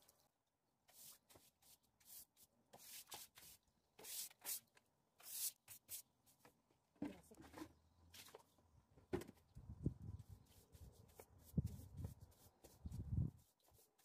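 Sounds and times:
brush scrubbing tiles: 0.9s - 4.6s.

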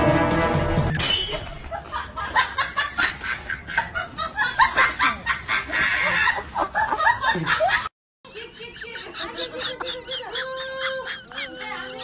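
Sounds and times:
laughter in short bursts: 8.3s - 12.0s.

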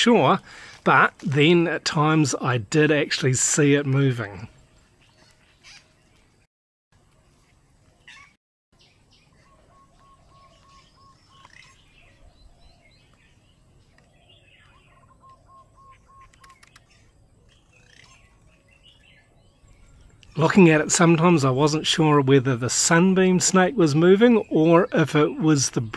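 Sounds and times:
birds chirping: 0.0s - 25.9s
faint sharp clicks: 16.2s - 16.9s.

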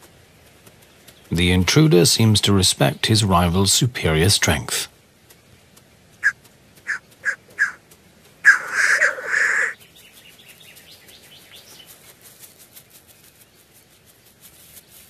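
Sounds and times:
black grouse calling: 6.2s - 9.8s.

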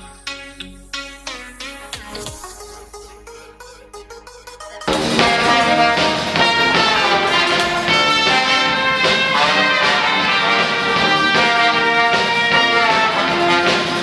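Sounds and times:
brass band playing a tune: 4.9s - 14.0s.

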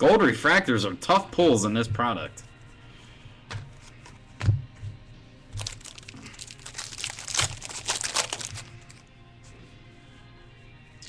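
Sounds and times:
foil wrapper crinkling and tearing: 5.6s - 9.1s.

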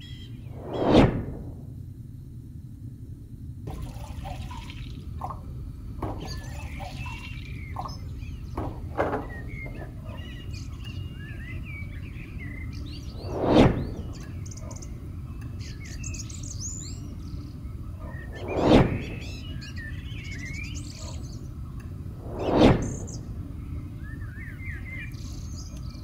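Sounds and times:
drips and splashes: 3.7s - 5.5s
birds chirping: 4.0s - 26.0s.

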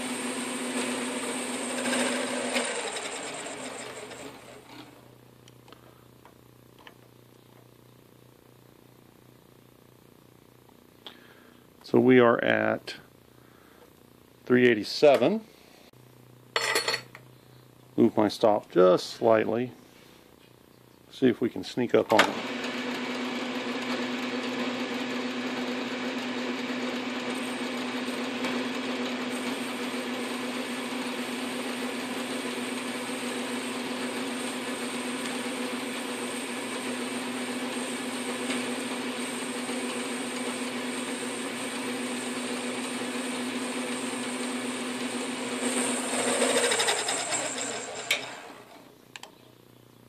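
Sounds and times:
lathe humming: 0.0s - 5.1s, 22.4s - 48.8s.

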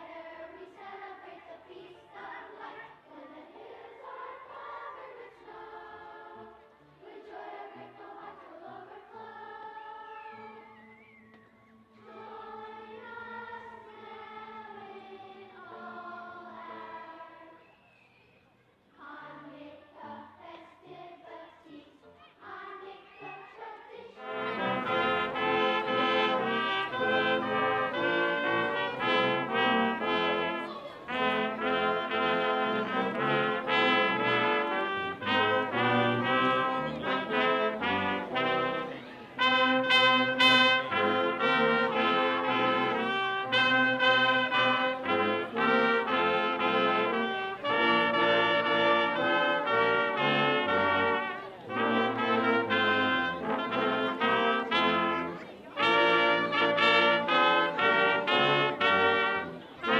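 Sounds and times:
brass ensemble playing: 24.2s - 59.9s.

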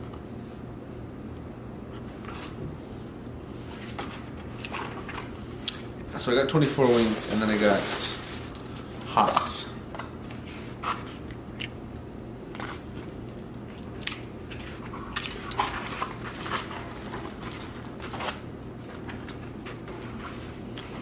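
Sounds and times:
steady low hum: 0.0s - 21.0s
food containers rustling and clicking: 3.9s - 5.4s, 6.6s - 9.5s, 13.7s - 21.0s.

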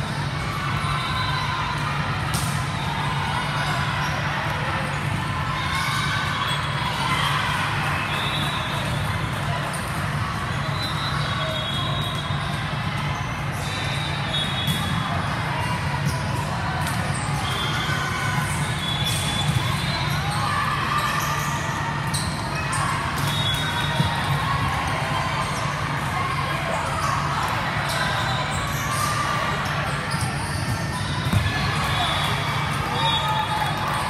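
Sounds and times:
murmur of voices: 0.0s - 34.0s
sneakers squeaking: 9.7s - 15.2s, 16.0s - 24.8s, 26.5s - 34.0s.

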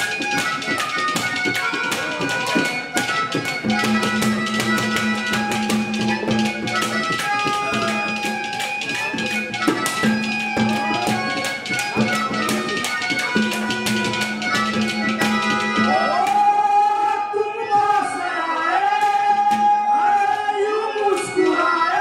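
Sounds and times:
hand drum beating fast rhythm: 0.0s - 16.3s
harmonium chords: 0.0s - 17.7s.

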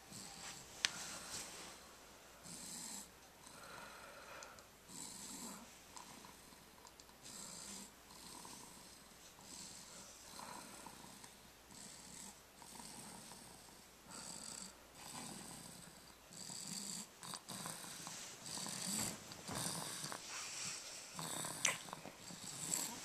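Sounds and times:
baby snoring softly: 2.4s - 20.3s, 21.1s - 23.0s
soft clicks: 6.8s - 7.2s.

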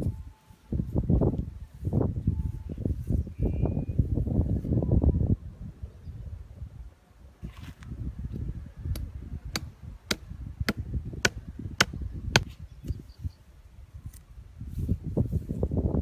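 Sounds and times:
machete striking wooden stake: 8.9s - 12.6s.

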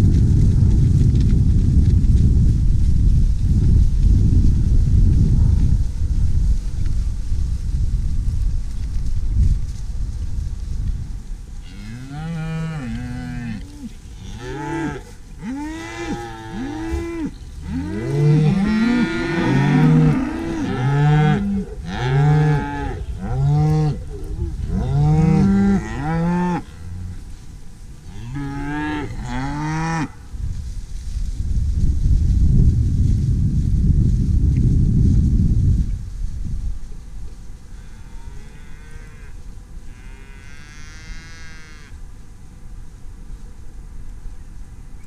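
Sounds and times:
cows mooing: 11.7s - 27.2s.

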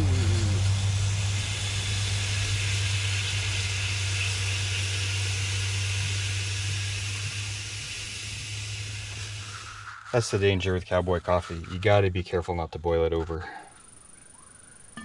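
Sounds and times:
coffee hissing on hot burner: 0.0s - 10.8s
steady low hum: 0.0s - 15.0s.

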